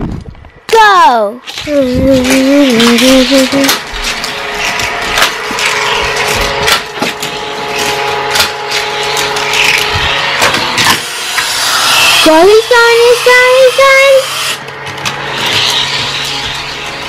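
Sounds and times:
toy track booster whirring: 0:00.8 - 0:17.0
toy cars clacking on track: 0:01.4 - 0:11.5.

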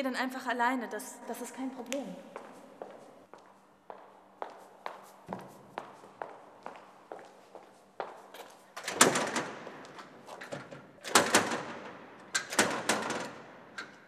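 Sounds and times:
locked door rattling and knocking: 0:08.8 - 0:14.0.

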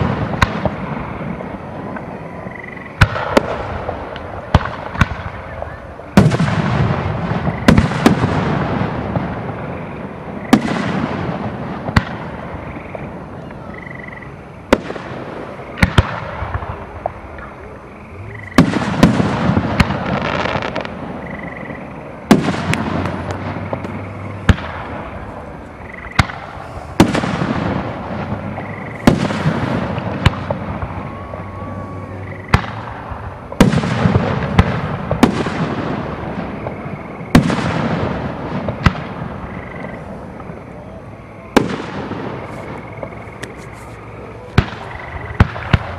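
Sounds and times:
echoing rumble: 0:00.0 - 0:45.9
fireworks bursting with bangs: 0:00.0 - 0:45.9.

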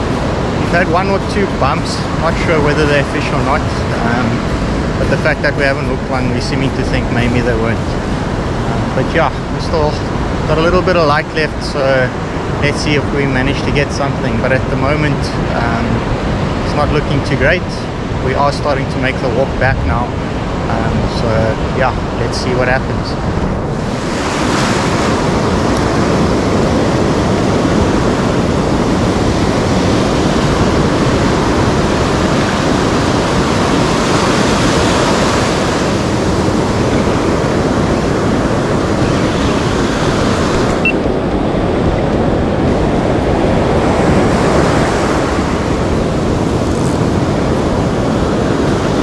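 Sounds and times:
surf breaking on a beach: 0:00.0 - 0:49.0
wind on the microphone: 0:00.0 - 0:49.0.

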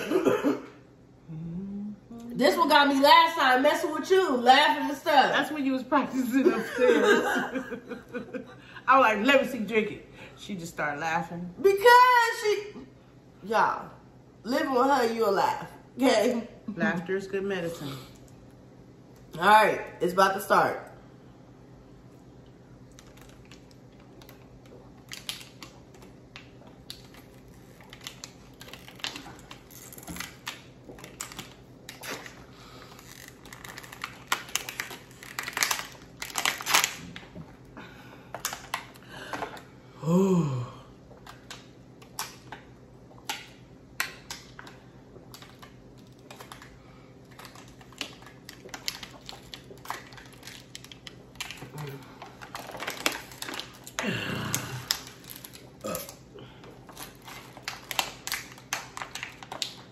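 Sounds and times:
plastic bottles crinkling: 0:22.9 - 0:37.6, 0:44.0 - 0:59.9.

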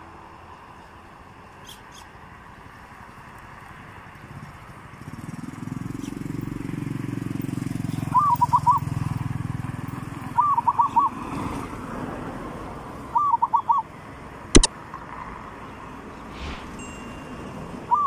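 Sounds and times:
dove cooing: 0:08.0 - 0:09.0, 0:10.3 - 0:11.2, 0:13.2 - 0:13.9
low rumble: 0:16.2 - 0:17.1.

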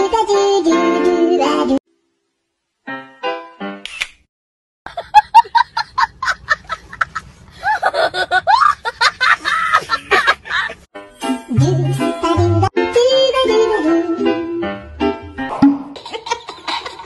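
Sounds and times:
person laughing: 0:04.9 - 0:10.9.

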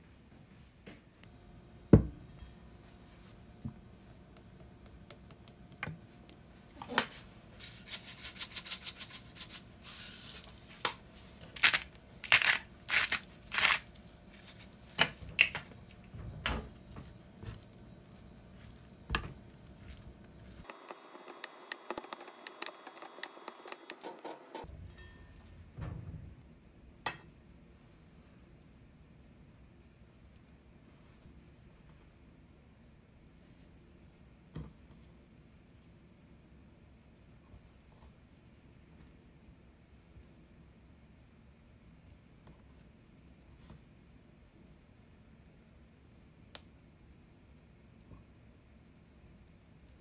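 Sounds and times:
rice mixing clicks: 0:04.0 - 0:06.4, 0:16.7 - 0:24.7
crisp scraping and rattling: 0:11.5 - 0:15.3.

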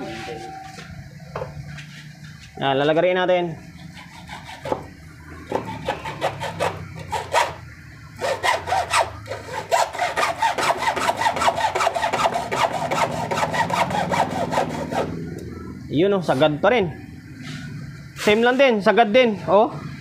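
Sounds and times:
hacksaw cutting metal: 0:03.8 - 0:04.9, 0:05.5 - 0:07.6, 0:08.2 - 0:15.2.

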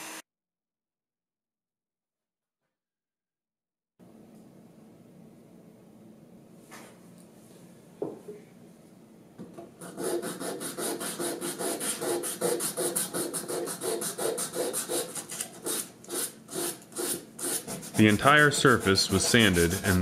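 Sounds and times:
sanding wood by hand: 0:09.8 - 0:20.0.

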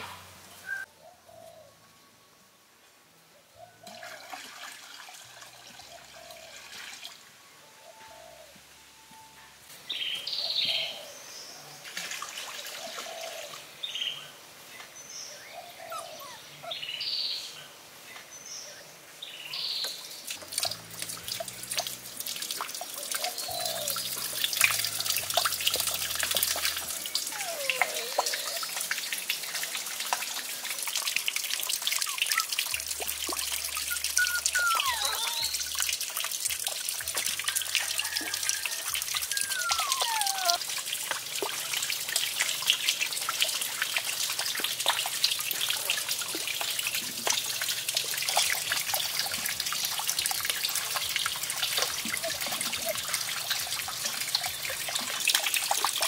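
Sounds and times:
water trickling and splashing: 0:03.6 - 0:07.4, 0:09.7 - 0:16.9, 0:17.8 - 0:56.0
birds chirping and calling: 0:09.9 - 0:11.5, 0:12.8 - 0:14.2, 0:14.8 - 0:17.6, 0:23.0 - 0:29.2, 0:32.0 - 0:35.8, 0:39.1 - 0:40.6.

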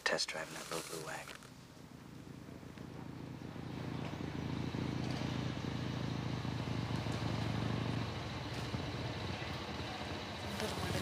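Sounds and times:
motorcycle engine running: 0:01.4 - 0:11.0.

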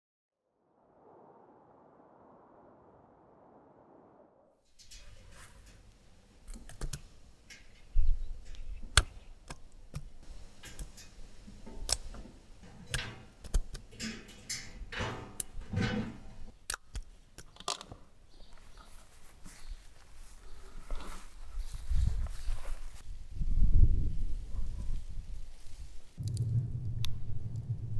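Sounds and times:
sharp clicks and knocks: 0:04.8 - 0:18.0.

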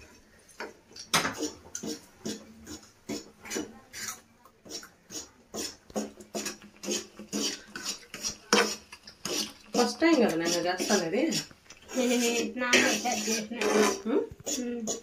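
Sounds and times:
spoon scraping a frying pan: 0:00.0 - 0:15.0
syrup bubbling: 0:00.0 - 0:15.0.

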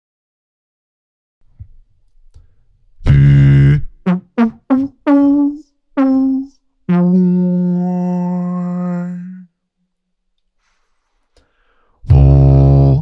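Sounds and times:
beatboxer making pitched notes: 0:03.0 - 0:09.3, 0:12.1 - 0:13.0.

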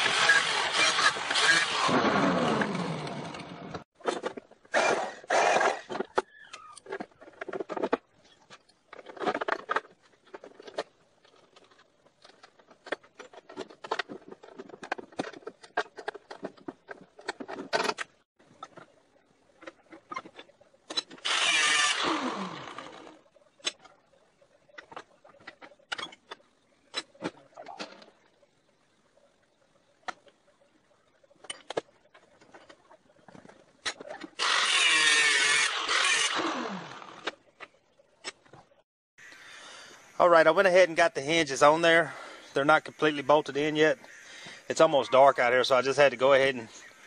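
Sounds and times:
angle grinder cutting: 0:00.0 - 0:03.8, 0:21.2 - 0:23.1, 0:34.4 - 0:37.3.

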